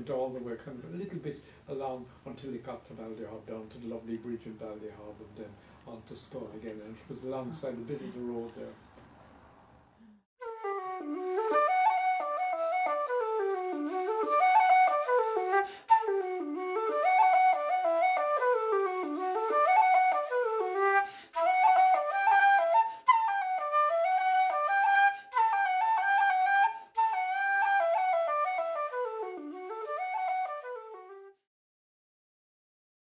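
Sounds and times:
solo flute-like melody: 0:10.4 - 0:31.5.

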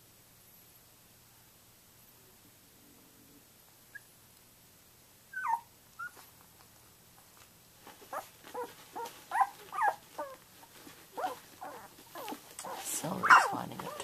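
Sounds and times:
puppies squeaking and whimpering: 0:05.3 - 0:06.2, 0:08.1 - 0:10.4, 0:11.2 - 0:14.0.

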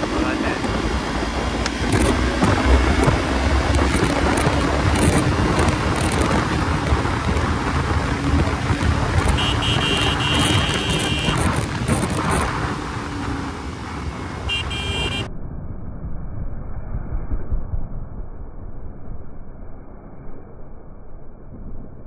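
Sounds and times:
wind and road noise: 0:00.0 - 0:22.0
vehicle horn: 0:09.3 - 0:11.5, 0:14.5 - 0:15.3.

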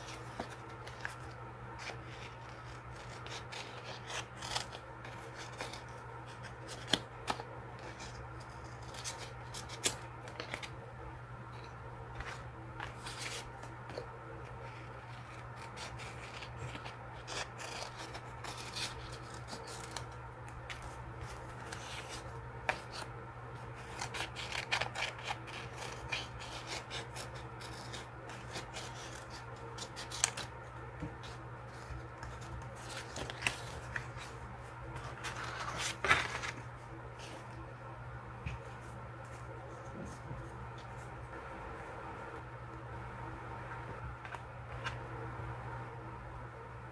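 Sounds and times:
paper rustling: 0:00.0 - 0:10.7, 0:11.6 - 0:37.6
scissors snipping paper: 0:01.8 - 0:10.7, 0:15.0 - 0:23.1, 0:23.8 - 0:30.5.

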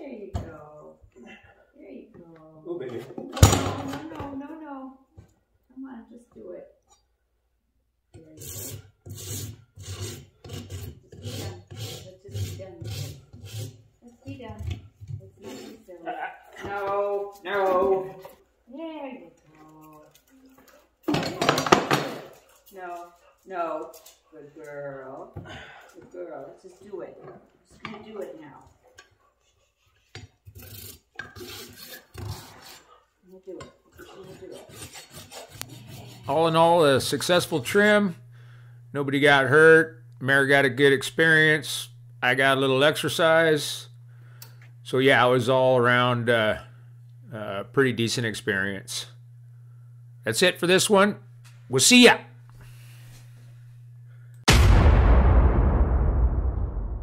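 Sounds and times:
rasp filing a hoof: 0:08.2 - 0:14.2, 0:15.4 - 0:15.9, 0:29.0 - 0:33.1, 0:33.9 - 0:36.8.

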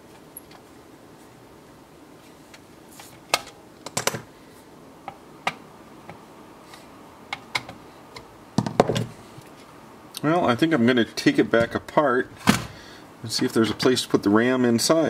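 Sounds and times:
tools set down on bench: 0:03.3 - 0:04.3, 0:08.6 - 0:09.2.

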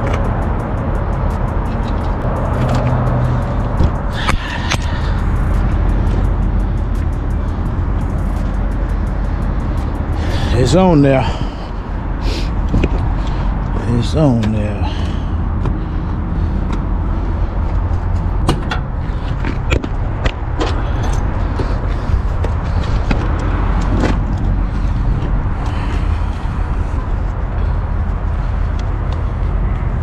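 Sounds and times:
knocks and clatter of gear: 0:00.0 - 0:11.0, 0:12.6 - 0:15.8, 0:16.5 - 0:26.2
truck engine idling: 0:00.0 - 0:30.0.

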